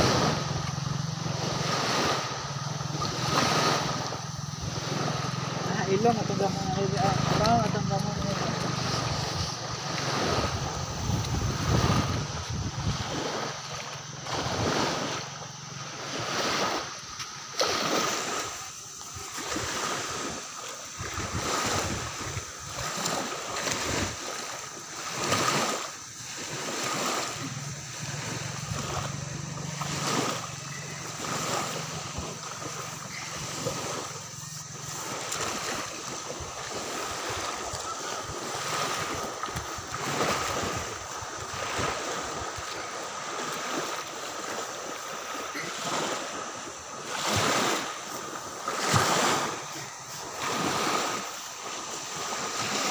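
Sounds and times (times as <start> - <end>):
wind on microphone: 0.0 - 15.2, 17.8 - 24.2, 26.5 - 43.8
surf washing on a beach: 0.0 - 52.9
faint high whine: 25.8 - 40.8.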